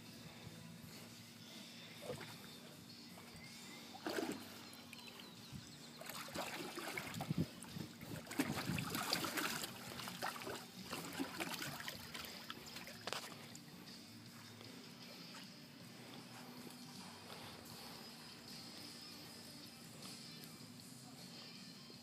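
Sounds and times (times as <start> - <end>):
water sloshing and splashing: 4.0 - 4.7, 6.0 - 13.6.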